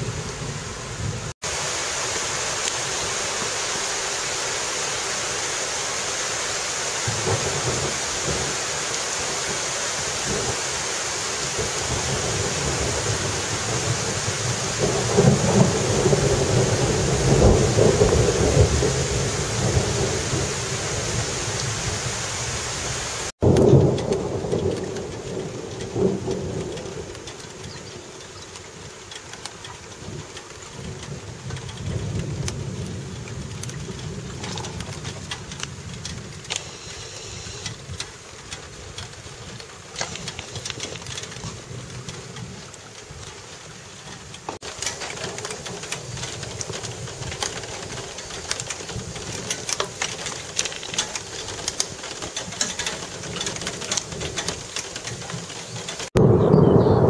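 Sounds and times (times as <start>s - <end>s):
heavy rain: 0.0s - 56.7s.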